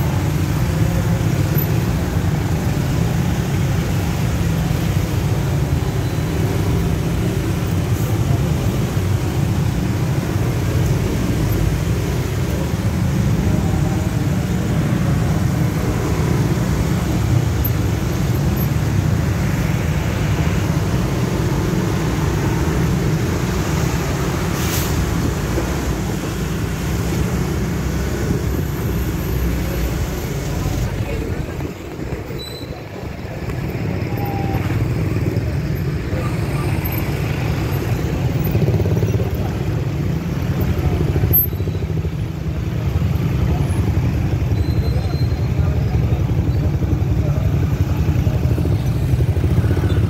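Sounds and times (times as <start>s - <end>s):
low engine rumble: 7.2s - 41.4s
short hiss: 24.6s - 25.0s.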